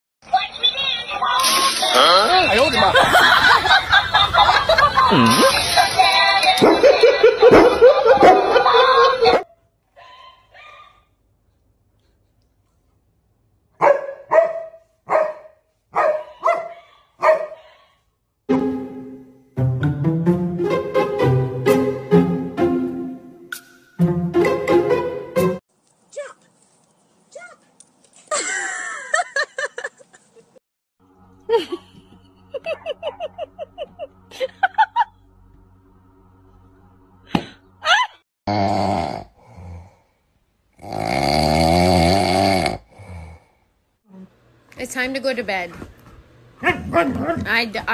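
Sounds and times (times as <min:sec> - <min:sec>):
person laughing: 0:02.8 - 0:06.0, 0:06.8 - 0:09.4, 0:28.3 - 0:30.5, 0:31.4 - 0:35.3, 0:36.5 - 0:38.2
dog barking: 0:06.6 - 0:09.6, 0:13.8 - 0:18.0, 0:46.6 - 0:47.4
steady low hum: 0:31.0 - 0:37.9.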